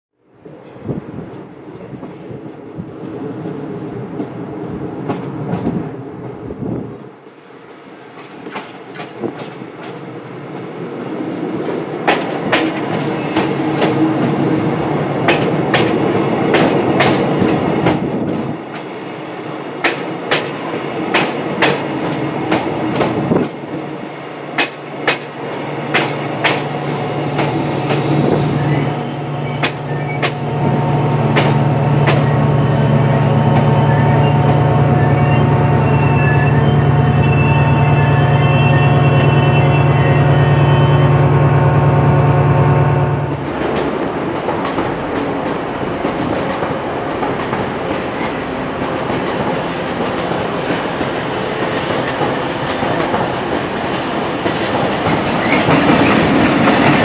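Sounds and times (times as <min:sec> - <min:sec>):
diesel locomotive engine: 0:00.3 - 0:57.0
train wheels clacking over joints: 0:08.1 - 0:10.0, 0:24.6 - 0:26.7, 0:31.3 - 0:32.3, 0:43.5 - 0:57.0.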